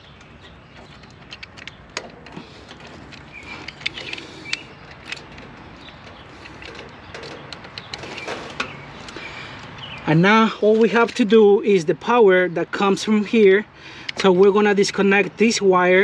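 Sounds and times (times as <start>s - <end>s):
clicks and rattles of electrical parts: 0.0s - 10.0s, 10.7s - 11.4s.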